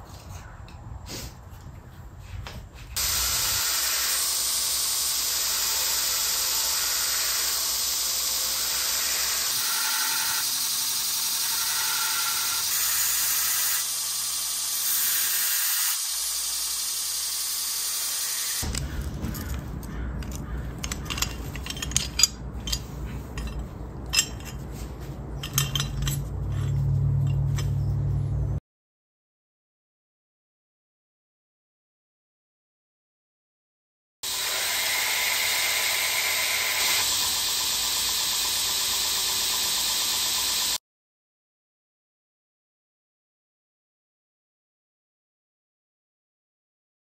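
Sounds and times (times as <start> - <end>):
belt grinder grinding metal: 3.0 - 24.7, 34.2 - 40.8
metallic clinks of steel: 25.4 - 27.9.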